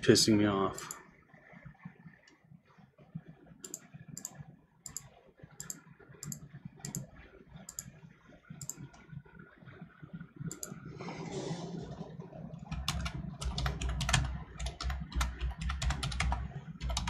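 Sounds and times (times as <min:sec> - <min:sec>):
computer mouse clicking: 0:00.8 - 0:01.0, 0:03.6 - 0:09.1, 0:10.4 - 0:10.8, 0:12.7 - 0:17.0.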